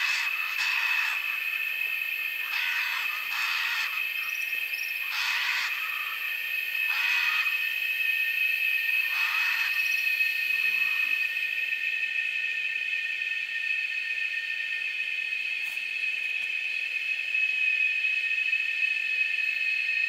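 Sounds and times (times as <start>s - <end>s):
short raspy animal calls: 0.0s - 1.3s, 2.4s - 4.0s, 5.0s - 6.2s, 6.9s - 7.5s, 9.1s - 9.8s
high-pitched animal drone: 0.0s - 20.0s.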